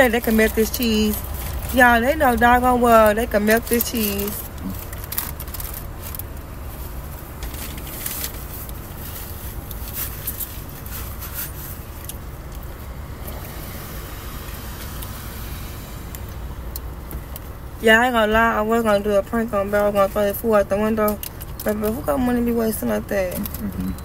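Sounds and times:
car engine idling: 0:00.0 - 0:24.0
paper wrapper crinkling: 0:02.6 - 0:12.8.

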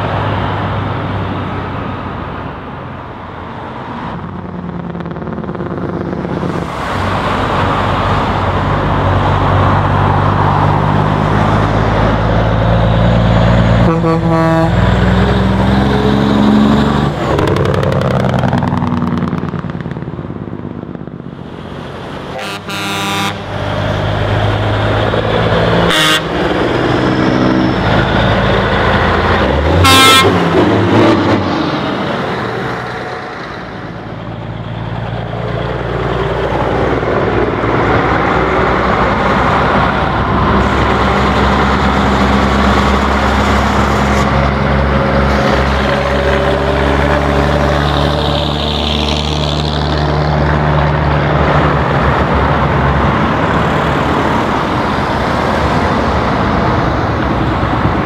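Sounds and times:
trucks driving past: 0:00.0 - 0:58.0
truck horn blasts: 0:13.8 - 0:15.0, 0:22.3 - 0:23.6, 0:25.8 - 0:26.6, 0:29.7 - 0:30.6.

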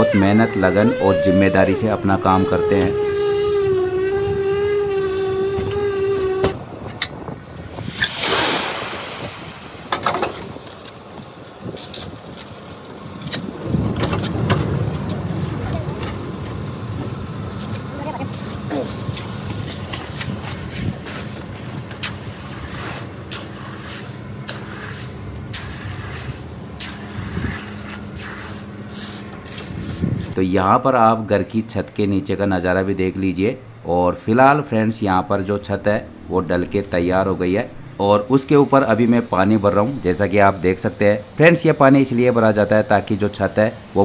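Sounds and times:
concrete vibrator whine: 0:00.0 - 0:07.6
wet concrete sliding hiss: 0:07.7 - 0:12.7, 0:18.5 - 0:30.4.

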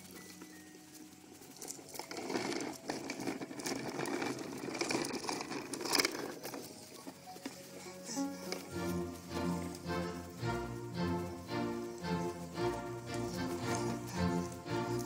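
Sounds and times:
plastic wheels rolling on pavement: 0:00.0 - 0:15.0
toy wheel clicks: 0:01.5 - 0:06.8.

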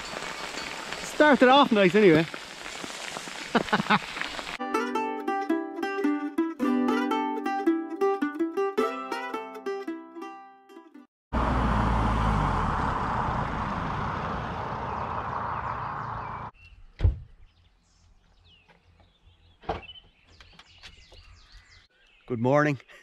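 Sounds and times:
car engine slowing down: 0:11.3 - 0:16.5
faint birds chirping: 0:14.7 - 0:23.0.

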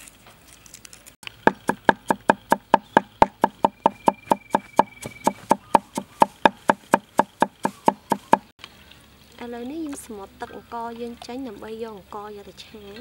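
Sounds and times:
cleaver chopping on wooden block: 0:01.5 - 0:08.5.

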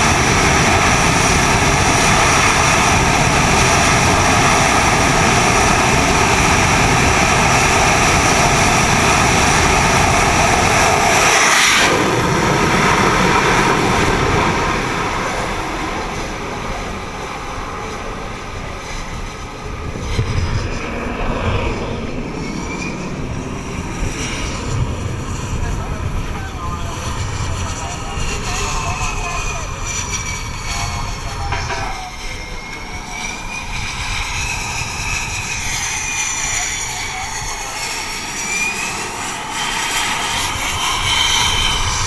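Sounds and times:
jet engines at full power: 0:00.0 - 0:42.0.

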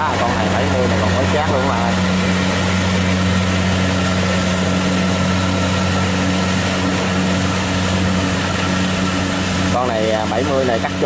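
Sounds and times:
diesel engine drone: 0:00.0 - 0:11.0
machinery rushing noise: 0:00.0 - 0:11.0.

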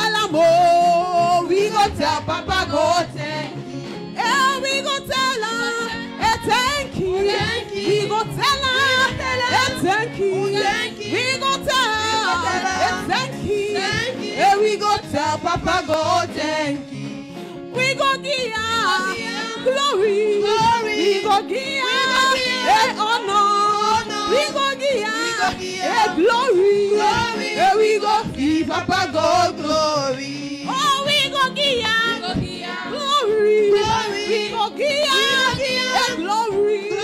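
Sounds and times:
women singing worship song: 0:00.0 - 0:37.0.

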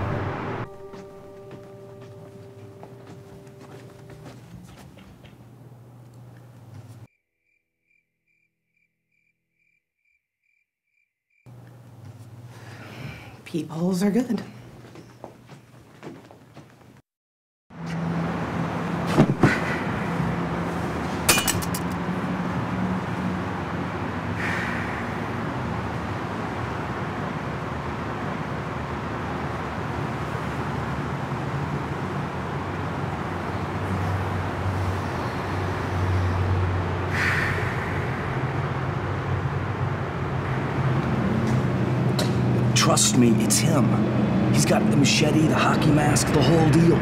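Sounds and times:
rushing noise with low hum: 0:17.8 - 0:47.0.

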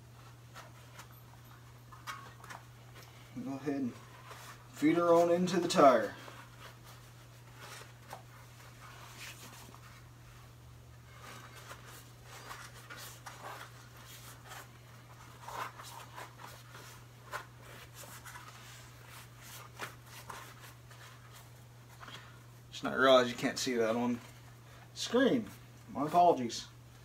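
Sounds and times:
rubber tube rubbing and scuffing: 0:06.0 - 0:22.0.

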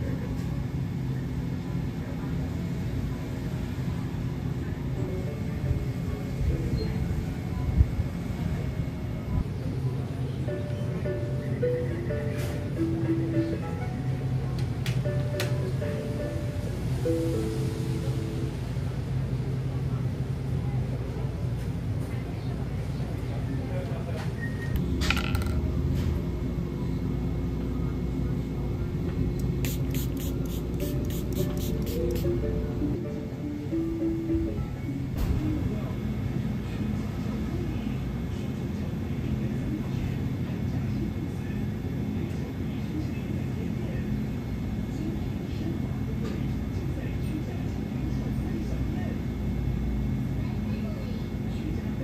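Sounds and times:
faint voices: 0:00.0 - 0:52.0
steady low hum: 0:24.7 - 0:52.0.

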